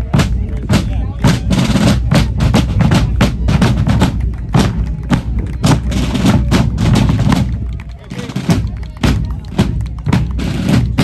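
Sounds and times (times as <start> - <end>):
rapid snare drum strokes: 0.0 - 7.6, 8.2 - 11.0
bass drum thumps: 0.0 - 7.7.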